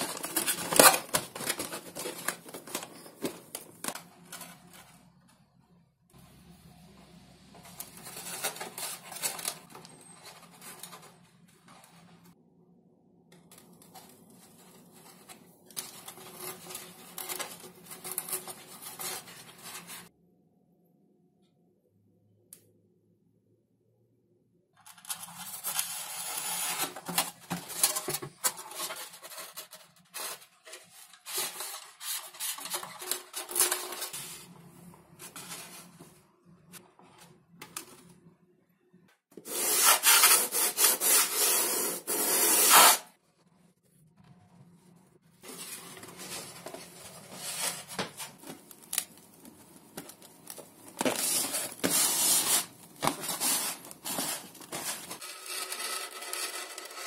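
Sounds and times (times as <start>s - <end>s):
foam rubbing and scraping: 39.4s - 43.2s, 51.0s - 57.0s.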